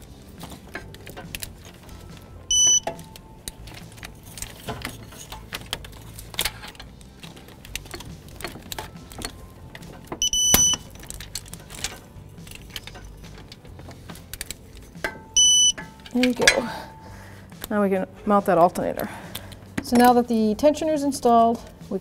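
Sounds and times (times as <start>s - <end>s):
torque wrench beep: 2.5s - 3.0s, 10.2s - 10.9s, 15.4s - 15.8s.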